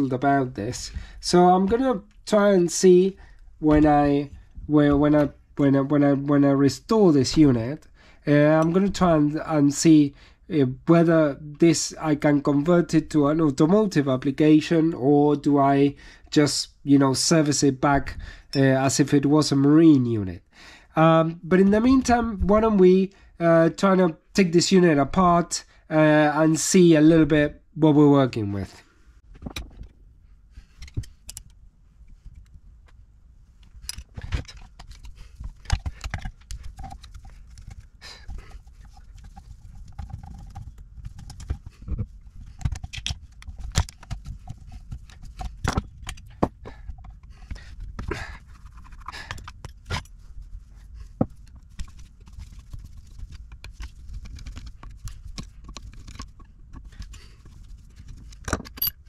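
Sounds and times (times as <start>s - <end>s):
metal clicks and scrapes: 30.6s - 32.6s, 33.6s - 50.2s, 51.3s - 59.0s.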